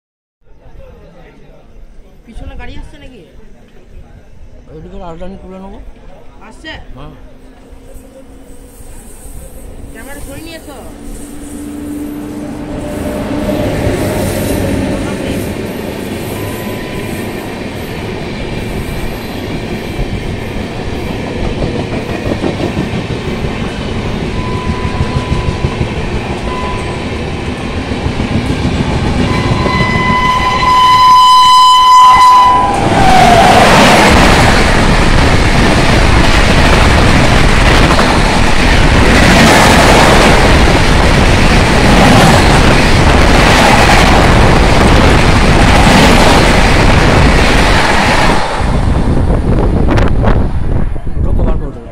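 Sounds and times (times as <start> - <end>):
locomotive horn blasts: 29.2 - 33.2.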